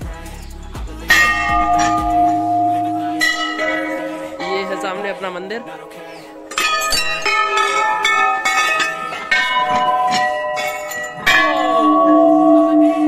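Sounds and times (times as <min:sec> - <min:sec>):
large brass bells ringing: 0:01.1 - 0:13.0.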